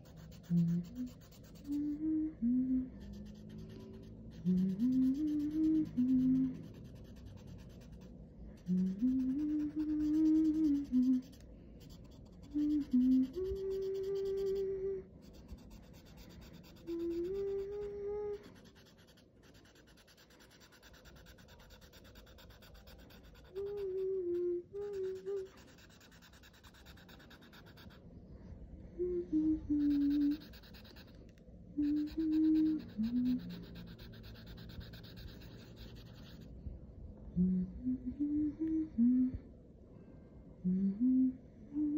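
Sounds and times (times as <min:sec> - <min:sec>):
person humming a tune: 0:00.0 - 0:07.1, 0:08.6 - 0:11.4, 0:12.3 - 0:15.2, 0:15.9 - 0:18.7, 0:23.4 - 0:26.6, 0:28.9 - 0:31.0, 0:31.8 - 0:35.6, 0:37.3 - 0:39.5, 0:40.6 - 0:41.9.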